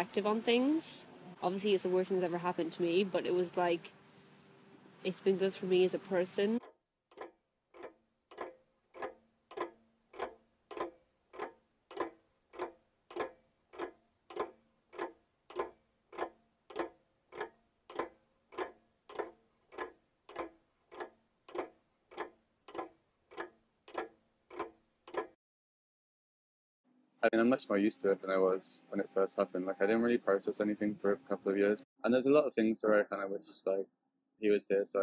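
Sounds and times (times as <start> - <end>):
clock ticking: 5.1 - 25.4.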